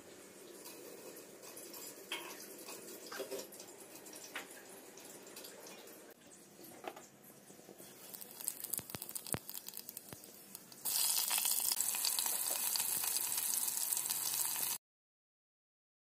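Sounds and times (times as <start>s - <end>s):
potatoes sizzling in hot oil: 8.0s - 14.8s.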